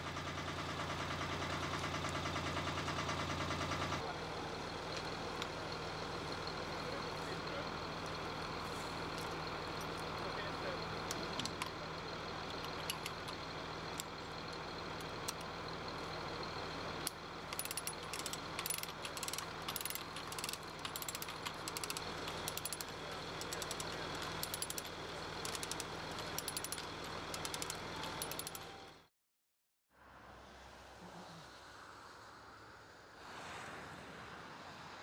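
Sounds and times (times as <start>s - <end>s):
rapid metallic clicking and rattling: 17.0s - 28.7s.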